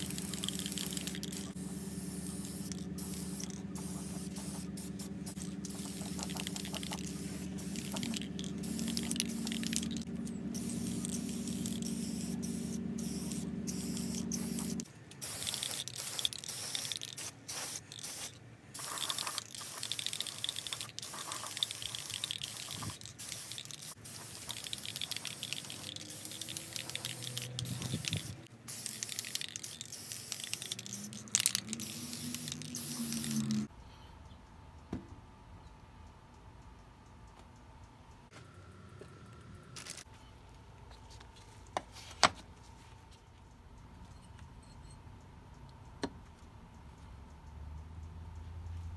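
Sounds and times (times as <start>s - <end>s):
spray paint hissing: 0.0s - 33.7s
steady low hum: 0.0s - 48.9s.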